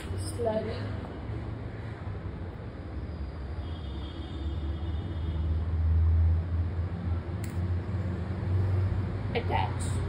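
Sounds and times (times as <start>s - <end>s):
sharp click: 7.4s - 7.7s.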